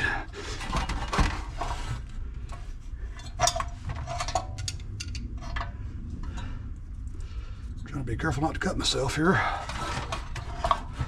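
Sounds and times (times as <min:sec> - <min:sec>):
scraping and rustling: 0:00.4 - 0:04.6, 0:09.5 - 0:11.0.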